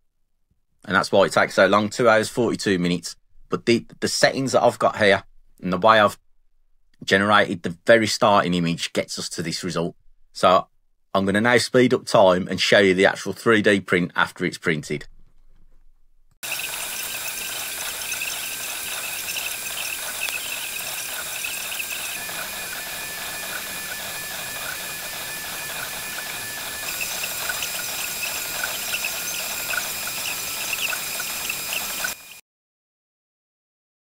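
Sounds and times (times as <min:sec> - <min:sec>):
printer fan hiss and whine: 0:16.4 - 0:32.4
stepper motors chirping squeaks: 0:16.4 - 0:32.4.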